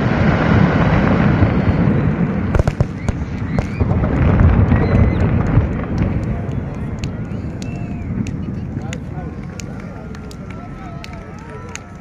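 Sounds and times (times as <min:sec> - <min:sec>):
sharp fireworks cracks: 0:00.0 - 0:12.0
fireworks rumble of shell bursts: 0:02.3 - 0:08.5.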